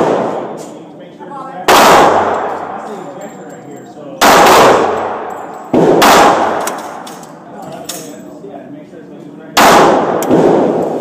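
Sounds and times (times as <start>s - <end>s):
pistol shots with echo: 0.0s - 0.6s, 1.6s - 2.8s, 4.2s - 7.2s, 9.6s - 11.0s.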